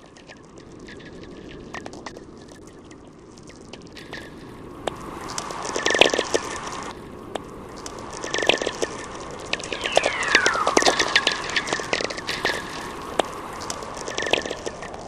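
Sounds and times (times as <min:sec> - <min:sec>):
dense clicks and crackles: 0:00.0 - 0:15.0
short falling whistle: 0:09.6 - 0:12.8.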